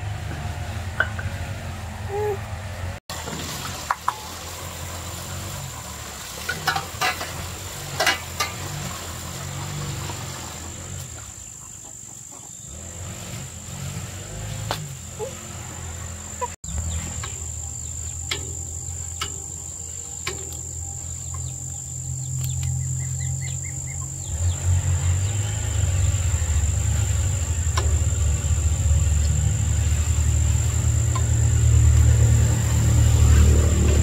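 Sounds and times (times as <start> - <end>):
insects droning: 4.1 - 34.0
low rumble: 16.6 - 34.0.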